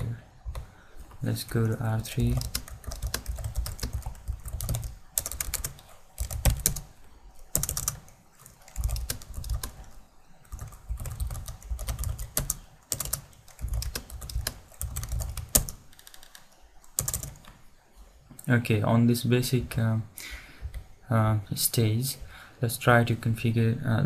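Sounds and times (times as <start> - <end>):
keyboard typing clicks: 2.3 - 6.9, 7.5 - 17.6.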